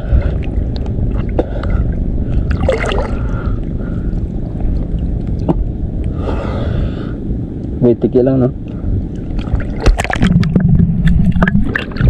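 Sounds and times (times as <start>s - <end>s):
water lapping and gurgling: 0.0s - 7.4s, 8.6s - 12.0s
steady low rumble: 0.0s - 12.0s.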